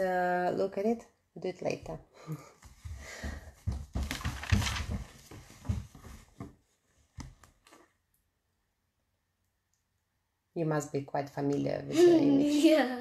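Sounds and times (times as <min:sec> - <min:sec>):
rustling and bumping: 0:02.7 - 0:07.4.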